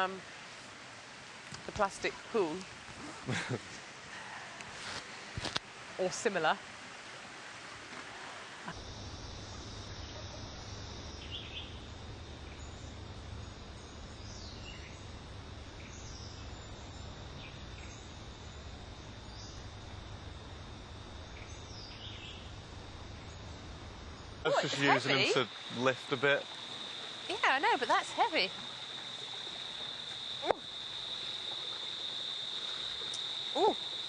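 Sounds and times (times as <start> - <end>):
high insect drone: 8.4 - 34.0
low hum: 8.6 - 28.9.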